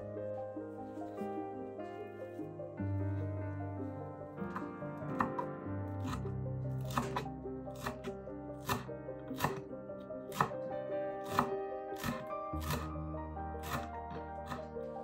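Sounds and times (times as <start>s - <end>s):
background music: 0.0s - 15.0s
knife chopping on wooden board: 4.5s - 9.7s, 10.3s - 10.6s, 11.2s - 13.0s, 13.6s - 14.7s.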